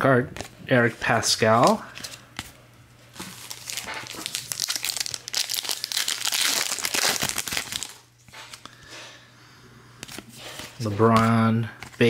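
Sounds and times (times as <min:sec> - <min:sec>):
plastic wrapper tearing and crinkling: 0:03.2 - 0:08.6.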